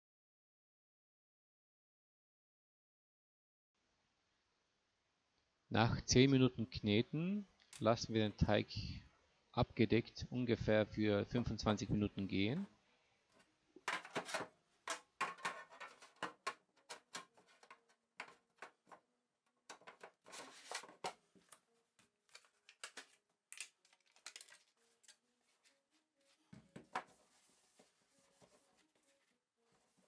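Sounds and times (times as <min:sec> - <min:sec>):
metal tin clicks and knocks: 0:13.9 - 0:17.4.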